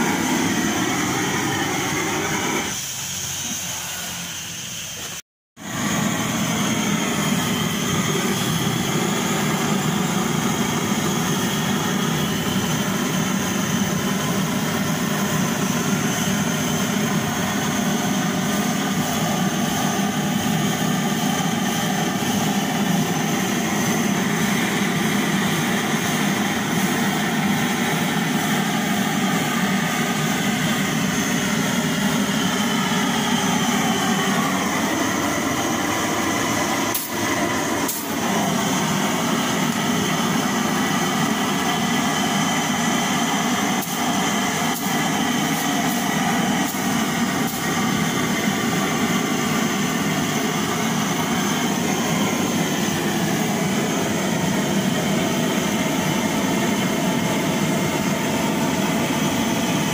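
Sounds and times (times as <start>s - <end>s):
blow lamp flame rushing: 0.0s - 3.4s, 5.6s - 56.2s.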